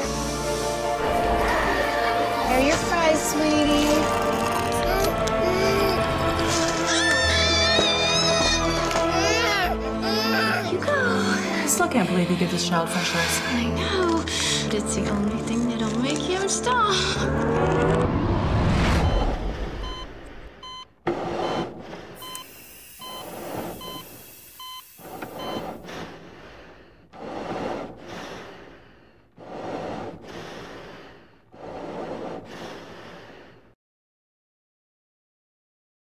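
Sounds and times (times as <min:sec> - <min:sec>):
slow breathing: 0:00.0 - 0:01.2, 0:19.4 - 0:22.5, 0:25.0 - 0:33.8
music swell: 0:00.0 - 0:07.1
medical monitor beeping: 0:19.0 - 0:25.8.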